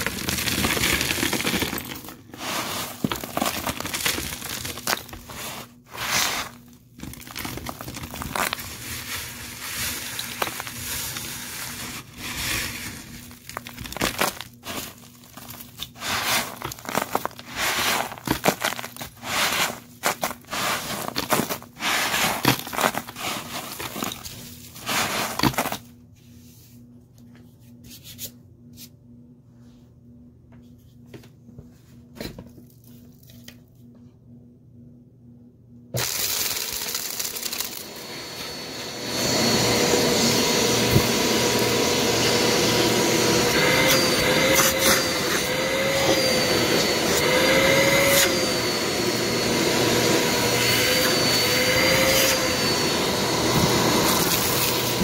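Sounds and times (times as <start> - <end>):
debris rustling and crunching: 0.0 - 25.9
faint steady hum: 0.0 - 36.0.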